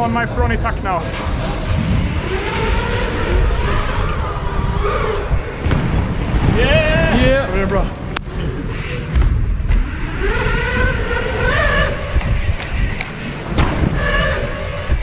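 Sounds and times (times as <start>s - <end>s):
wind buffeting microphone: 0.0s - 15.0s
drawn-out rising tone: 1.0s - 7.8s
tyre rumble: 1.0s - 15.0s.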